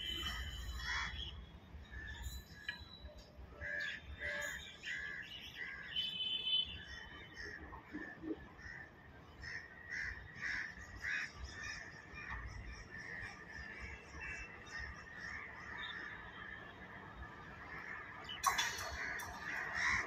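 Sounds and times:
crows cawing: 0:08.6 - 0:16.1, 0:18.7 - 0:20.0.

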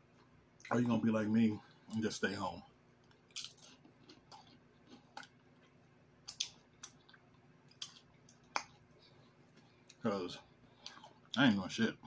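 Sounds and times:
man chewing food: 0:02.8 - 0:11.4
wet mouth clicks and smacks: 0:06.3 - 0:08.8.

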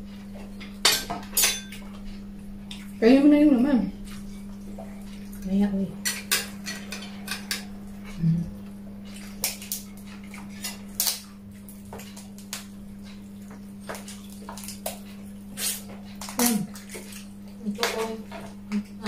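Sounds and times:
steady low hum: 0:00.0 - 0:19.0
spoons and plates clinking: 0:06.0 - 0:07.7.

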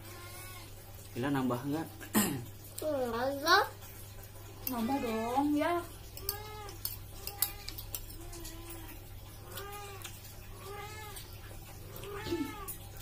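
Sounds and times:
cat meowing: 0:00.0 - 0:00.7, 0:06.2 - 0:13.0
spoon clinking on plate: 0:06.0 - 0:08.2.

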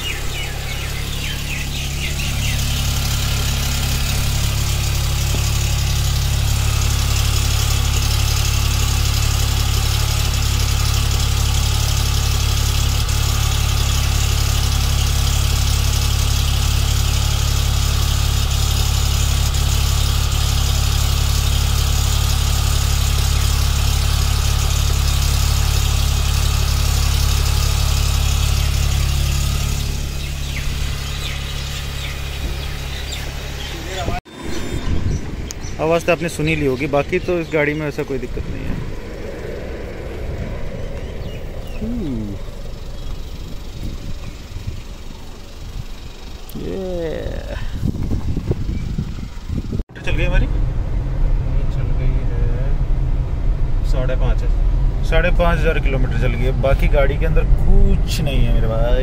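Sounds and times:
car engine idling: 0:00.0 - 0:59.0
engine rattling: 0:00.0 - 0:59.0.

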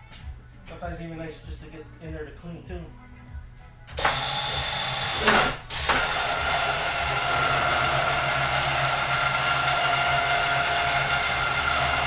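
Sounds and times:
electric winch whining: 0:04.0 - 0:12.0.

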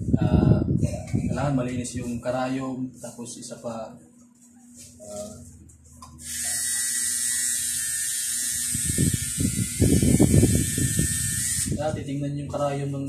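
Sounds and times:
tattoo machine buzzing: 0:06.2 - 0:11.9.

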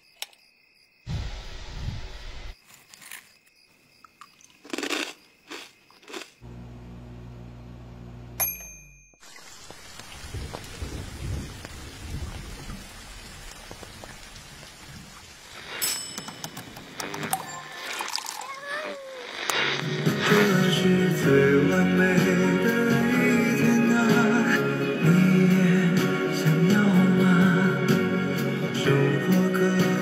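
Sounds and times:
low steady hum: 0:06.5 - 0:08.5
rain-like hiss: 0:09.2 - 0:17.0.

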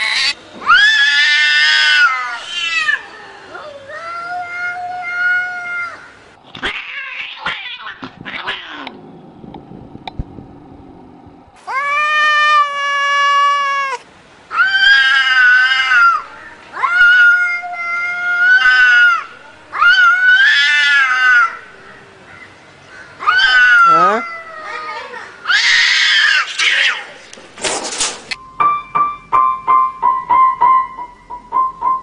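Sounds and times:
cats yowling: 0:00.0 - 0:09.0, 0:11.6 - 0:21.6, 0:23.2 - 0:27.2.

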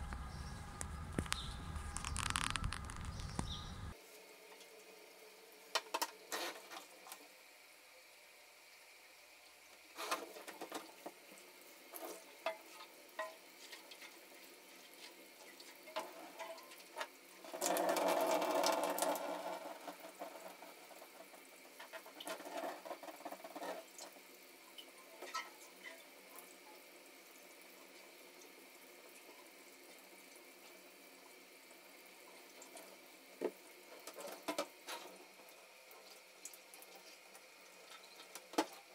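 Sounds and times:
tap water running: 0:09.8 - 0:26.4.

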